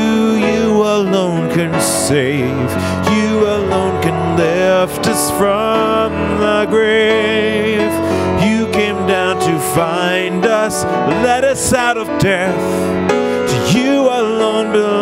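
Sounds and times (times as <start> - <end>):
grand piano: 0.0 - 15.0
man singing with vibrato: 0.0 - 15.0.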